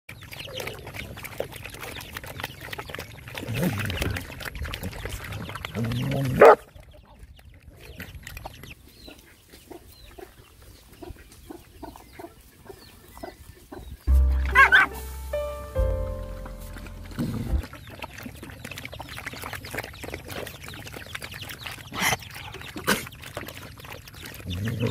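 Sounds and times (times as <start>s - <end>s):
dogs lapping and slurping: 0.1s - 14.1s, 16.7s - 24.9s
chicken clucking: 9.0s - 17.6s
music: 14.1s - 17.6s.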